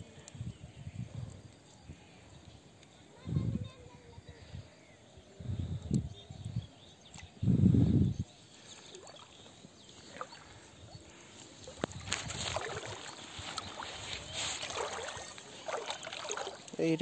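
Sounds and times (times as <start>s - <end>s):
legs sloshing through water: 8.6s - 16.9s
water splashing and dripping: 8.7s - 17.0s.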